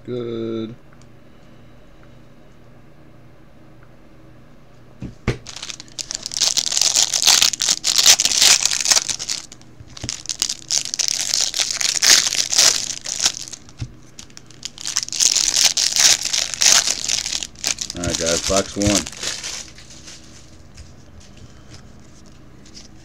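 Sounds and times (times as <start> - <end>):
plastic wrapping crinkling and tearing: 5.4 - 20.5.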